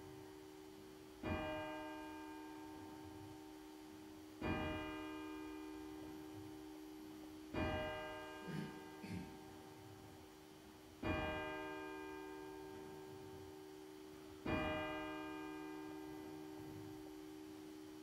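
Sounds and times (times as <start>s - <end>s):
church bell tolling: 14.4s - 17.1s.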